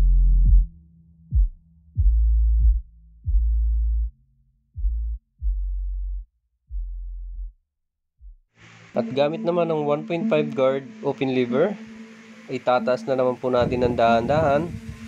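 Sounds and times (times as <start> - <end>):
deep bass notes: 0.0 - 7.6, 8.2 - 15.0
kick drum hits: 1.3 - 3.6.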